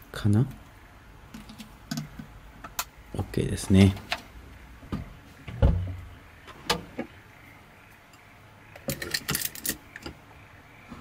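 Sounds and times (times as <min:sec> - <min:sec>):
dull thump: 0:04.9 - 0:06.0.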